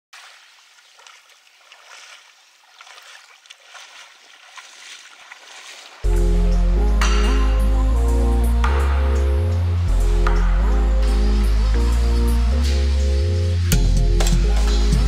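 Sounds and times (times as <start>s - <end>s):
light water splashes: 0.1s - 6.2s
soft water wash: 0.2s - 15.0s
loud background music: 6.0s - 15.0s.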